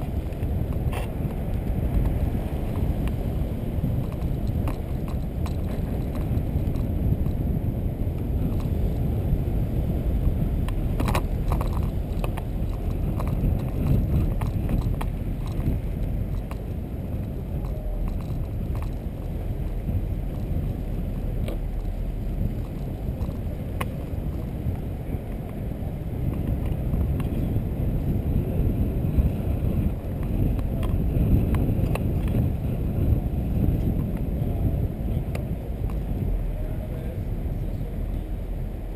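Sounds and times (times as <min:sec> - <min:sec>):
car driving rumble: 0:00.0 - 0:38.9
faint clicks and rattles: 0:04.0 - 0:07.4, 0:10.6 - 0:25.6.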